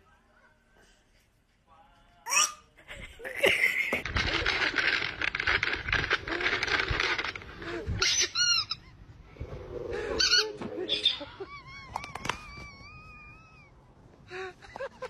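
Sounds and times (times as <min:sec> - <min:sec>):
squeaky toy squeaking: 0:02.3 - 0:02.7, 0:08.0 - 0:09.0
plastic bag crinkling: 0:04.0 - 0:07.8.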